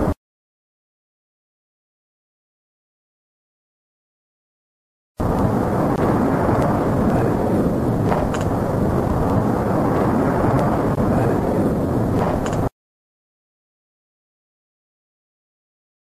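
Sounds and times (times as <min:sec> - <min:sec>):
fire tornado rushing roar: 0:05.2 - 0:12.7.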